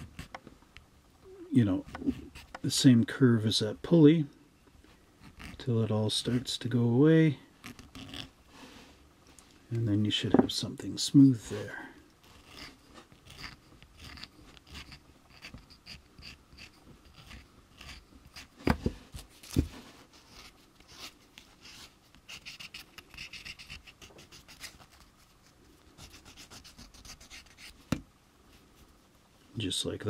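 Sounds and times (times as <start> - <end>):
plastic rasping on sanding block: 12.4 - 18.6, 22.3 - 25.0, 26.0 - 27.8.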